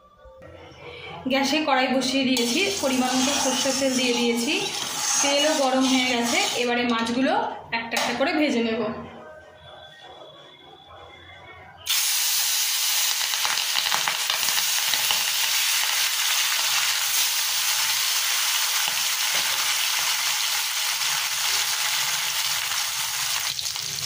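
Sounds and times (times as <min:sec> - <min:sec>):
fish frying in hot oil: 0:11.9 - 0:24.0.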